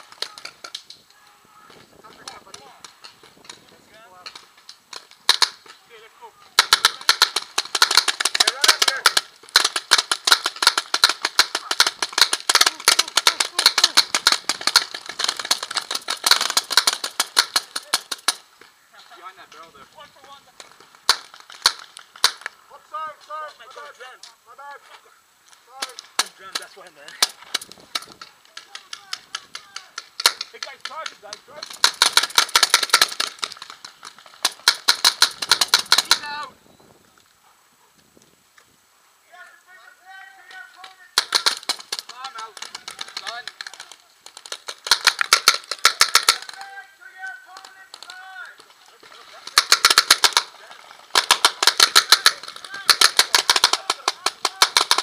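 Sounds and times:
paintball markers firing: 0:02.0 - 0:05.8, 0:06.6 - 0:18.7, 0:20.2 - 0:22.6, 0:25.8 - 0:36.3, 0:40.5 - 0:55.0.

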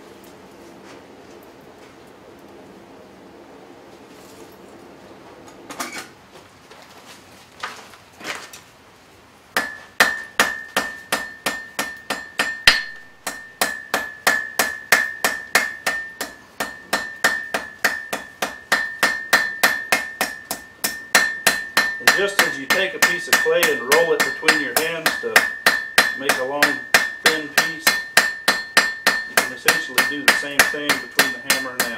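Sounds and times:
soft scrapes and clinks: 0:04.1 - 0:04.7
hammer striking anvil: 0:09.6 - 0:31.9.

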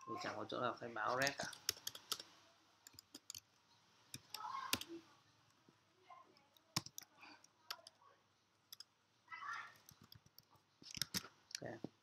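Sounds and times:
computer keys clicking: 0:01.2 - 0:03.5, 0:04.1 - 0:05.0, 0:06.7 - 0:07.1, 0:07.7 - 0:08.0, 0:08.7 - 0:08.9, 0:09.8 - 0:11.7.

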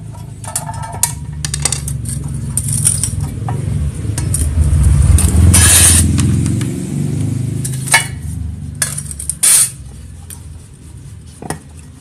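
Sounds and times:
metal cover plate clinking: 0:00.0 - 0:03.4
vehicle engine running: 0:01.1 - 0:12.0.

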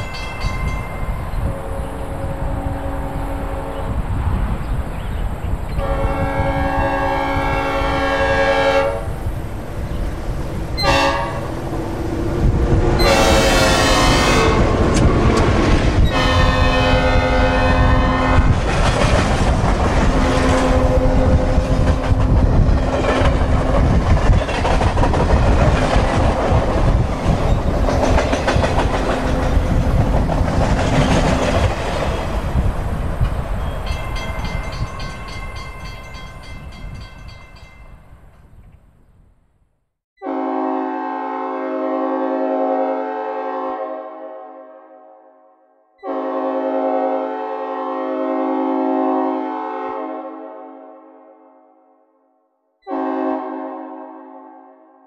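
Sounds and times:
train rumble: 0:00.0 - 0:38.5
locomotive air horn blasts: 0:05.8 - 0:09.1, 0:10.8 - 0:11.6, 0:13.0 - 0:14.8, 0:16.1 - 0:18.6, 0:40.2 - 0:45.3, 0:46.0 - 0:51.6, 0:52.8 - 0:54.9
rail clatter: 0:18.4 - 0:37.8.

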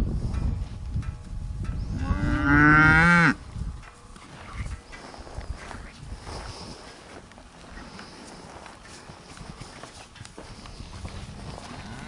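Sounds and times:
bull bellowing: 0:02.0 - 0:03.4.

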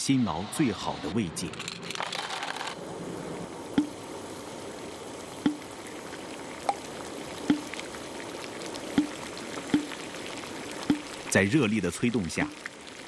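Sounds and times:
water bubbling in a pot: 0:02.8 - 0:13.0.

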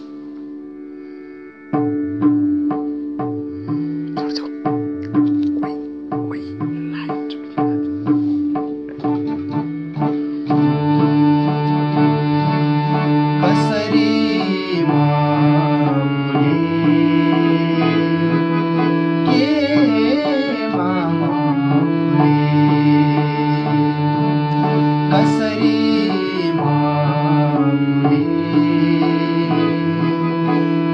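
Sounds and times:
harmonium held notes: 0:00.0 - 0:30.9
drum strokes: 0:01.8 - 0:10.9
man singing: 0:13.0 - 0:23.8, 0:24.6 - 0:30.9.

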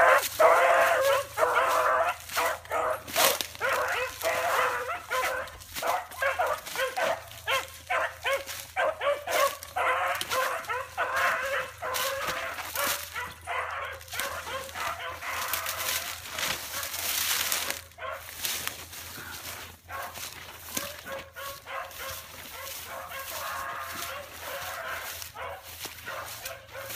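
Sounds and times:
puppies barking and yelping: 0:00.0 - 0:26.9.

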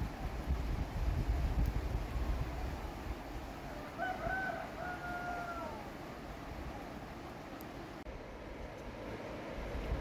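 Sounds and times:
wind buffeting microphone: 0:00.0 - 0:04.2, 0:09.4 - 0:10.0.

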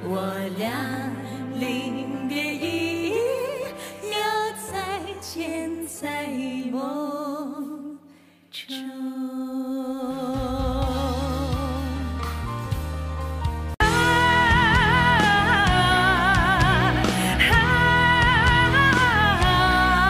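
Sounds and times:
two women singing a duet: 0:00.0 - 0:12.2, 0:13.8 - 0:20.0
bass: 0:10.2 - 0:20.0
drums: 0:10.2 - 0:20.0
band accompaniment: 0:10.7 - 0:20.0.

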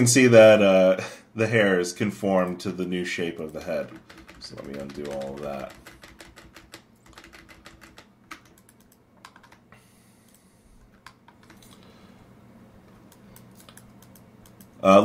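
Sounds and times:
faint steady hum: 0:00.0 - 0:15.0
keyboard keys clicking: 0:03.4 - 0:09.6, 0:10.9 - 0:11.8, 0:13.1 - 0:14.8.

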